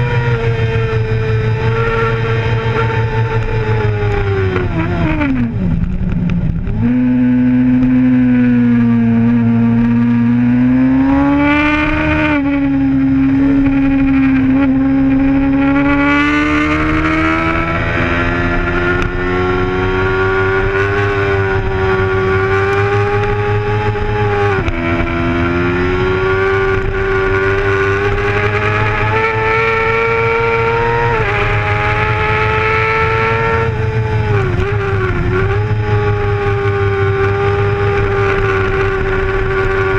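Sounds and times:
motorcycle engine revving: 0.0 - 39.9
wind rushing: 11.7 - 22.4.

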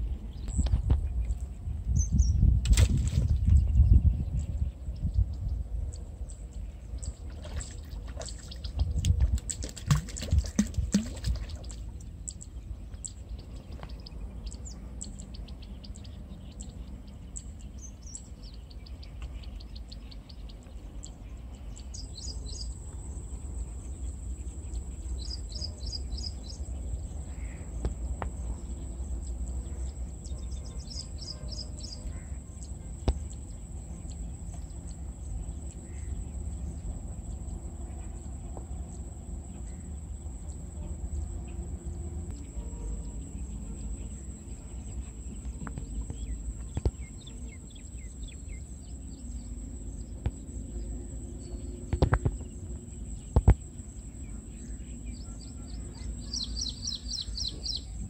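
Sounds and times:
fish splashing in water: 7.2 - 12.0
bird chirps: 9.7 - 36.8, 42.3 - 58.0.

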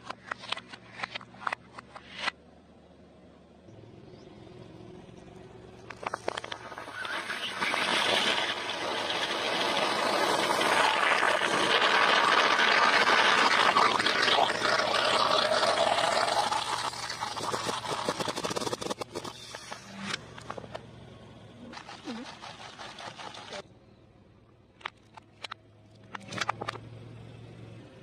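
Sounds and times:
rushing spray of liquid: 6.2 - 19.7.

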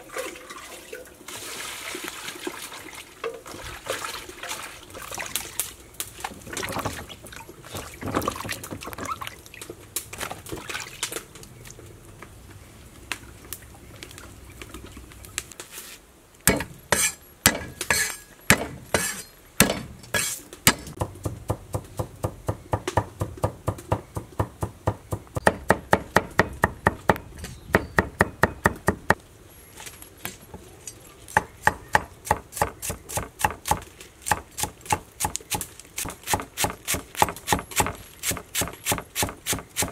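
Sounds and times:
cleaver chopping on wooden board: 16.5 - 26.8.

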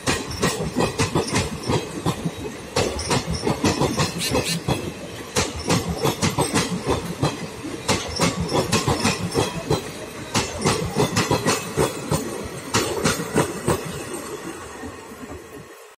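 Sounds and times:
train wheels clacking over rail joints: 0.0 - 15.4
train rolling rumble: 0.0 - 15.9.

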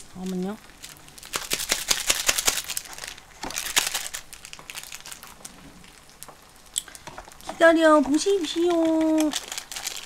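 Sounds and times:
plastic packaging crinkling: 0.1 - 10.0.

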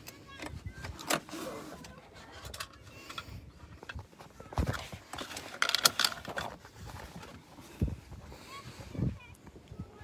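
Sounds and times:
objects knocking and clattering: 2.4 - 7.4.

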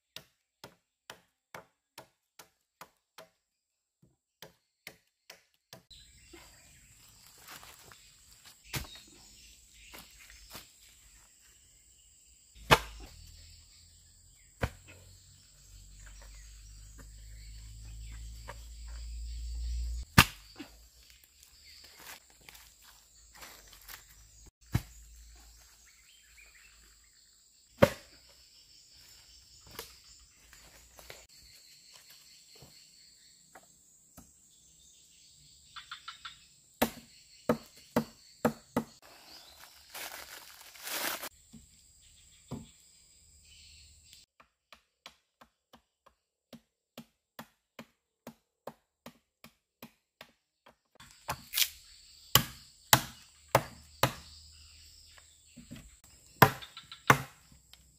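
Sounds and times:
high insect buzz: 7.0 - 34.0, 36.0 - 44.2
wood being chopped: 8.7 - 9.0, 12.6 - 13.2, 14.6 - 14.9, 19.9 - 20.7, 24.7 - 25.0, 27.8 - 28.2, 36.8 - 39.0, 44.4 - 51.7, 52.3 - 54.3, 56.4 - 57.5.

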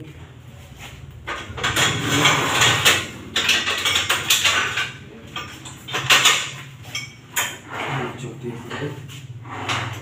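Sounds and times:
gym cable machine clanking: 1.3 - 10.0.

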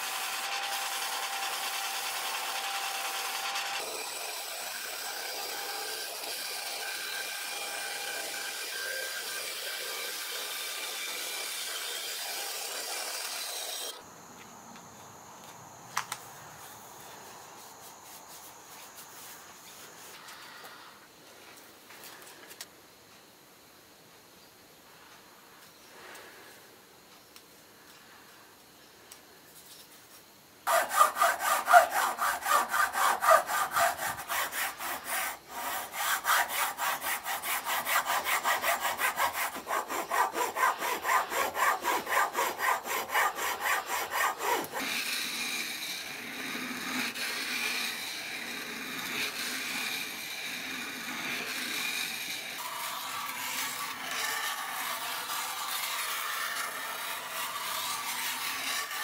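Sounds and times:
hand saw cutting wood: 0.0 - 14.0, 30.7 - 59.0
blade scraping on sharpening stone: 30.7 - 59.0.

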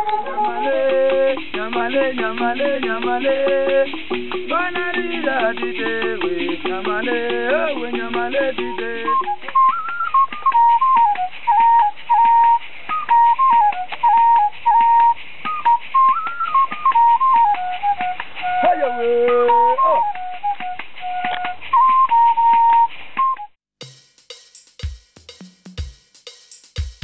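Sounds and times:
hand percussion clicking: 0.0 - 21.5
wooden flute melody: 0.0 - 23.6.

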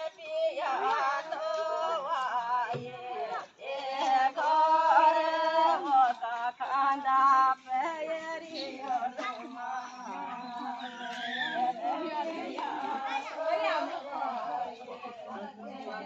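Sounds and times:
women singing folk song in unison: 0.0 - 16.0.

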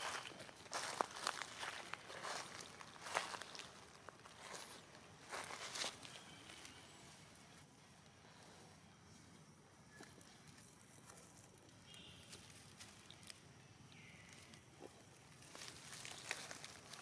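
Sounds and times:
dry leaves crackling: 0.0 - 7.0, 10.5 - 17.0.

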